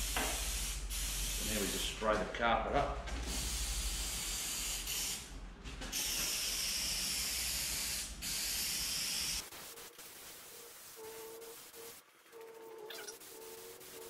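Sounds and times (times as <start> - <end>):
aerosol can spraying: 0.0 - 1.9, 6.0 - 14.0.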